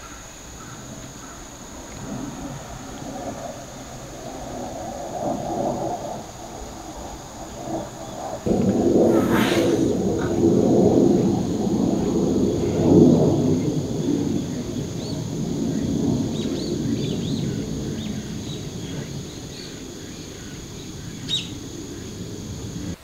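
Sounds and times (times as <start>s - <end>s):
low rumble: 8.4s - 12.6s
high-pitched whine: 8.5s - 11.8s
small birds chirping: 16.3s - 22.9s.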